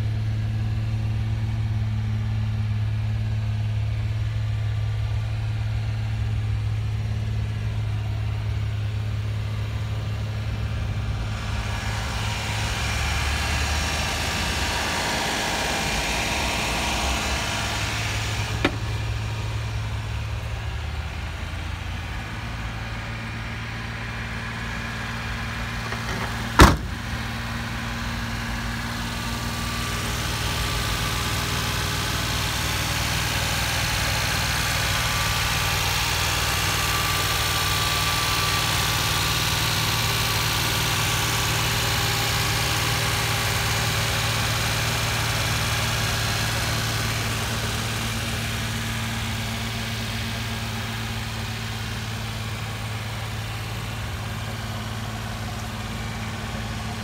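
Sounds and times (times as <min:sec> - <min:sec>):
truck engine idling: 0:00.0 - 0:57.0
sharp knock: 0:18.6 - 0:19.0, 0:25.9 - 0:27.1.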